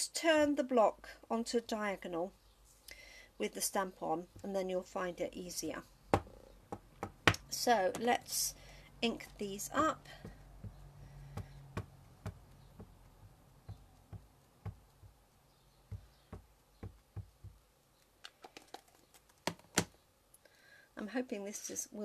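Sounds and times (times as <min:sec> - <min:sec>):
stamp tapping on ink pad: 0:10.2 - 0:15.2, 0:15.9 - 0:17.6.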